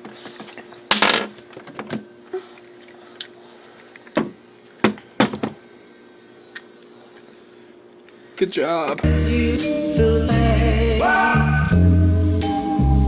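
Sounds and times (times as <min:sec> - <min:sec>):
toy train motor whirring: 0:00.0 - 0:08.8.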